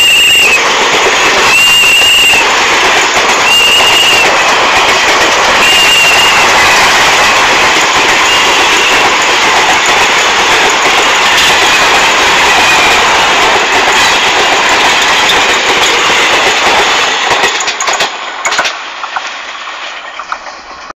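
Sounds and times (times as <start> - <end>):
train wheels rushing on track: 0.0 - 20.9
sharp clicks and knocks: 13.4 - 19.4.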